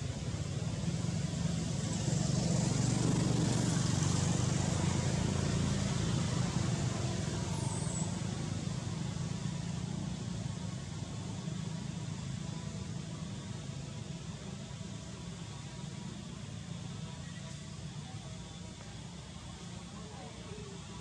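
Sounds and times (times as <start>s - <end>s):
vehicle engine humming: 0.0s - 21.0s.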